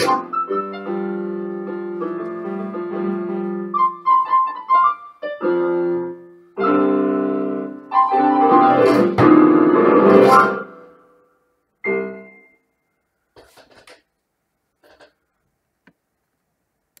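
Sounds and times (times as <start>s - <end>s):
electronic keyboard piano chords: 0.0s - 11.2s, 11.8s - 12.6s.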